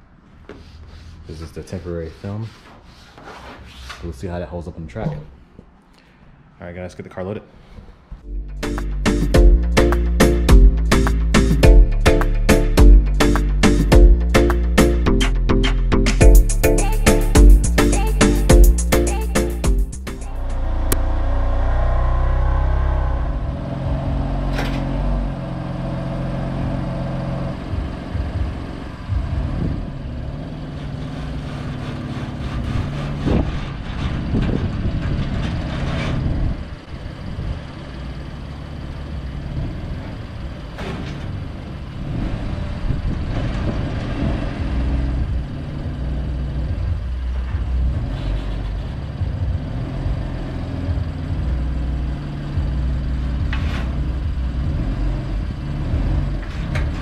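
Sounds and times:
car engine at low revs: 0:20.3 - 0:57.0.

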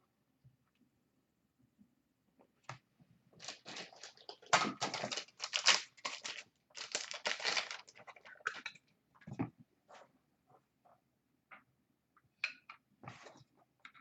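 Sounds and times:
packaging rustling: 0:03.4 - 0:08.6.

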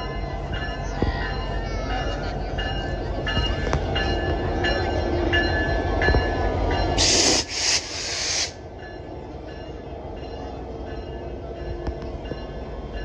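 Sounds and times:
locomotive bell ringing: 0:00.0 - 0:07.1, 0:08.6 - 0:13.0
diesel locomotive passing: 0:00.0 - 0:13.0
loud hiss: 0:07.0 - 0:08.6.

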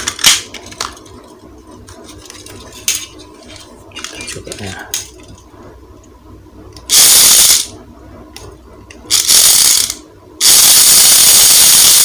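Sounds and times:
toy car motor and gears whirring: 0:06.9 - 0:07.7, 0:09.1 - 0:12.0.

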